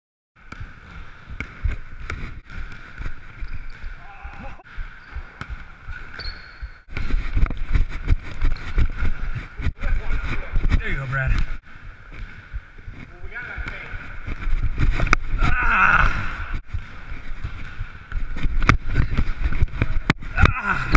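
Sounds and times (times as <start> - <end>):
basketball bouncing: 0.4 - 9.4
sneaker squeaks: 0.6 - 7.4.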